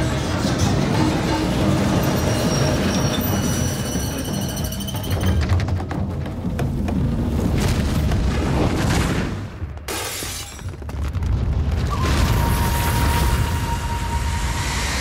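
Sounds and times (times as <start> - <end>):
cart rumbling on track: 0.0 - 7.6.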